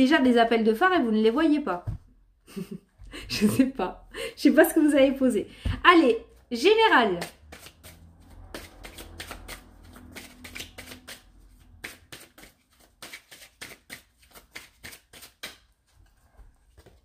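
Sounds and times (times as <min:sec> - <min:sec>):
cards being shuffled: 0:07.2 - 0:17.0.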